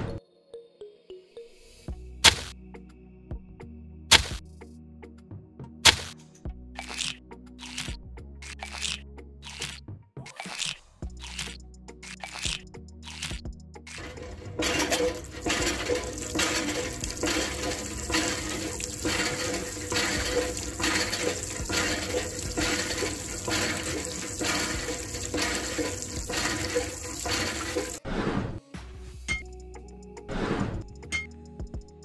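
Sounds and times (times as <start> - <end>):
water gushing from hand pump: 13.9 - 28.0.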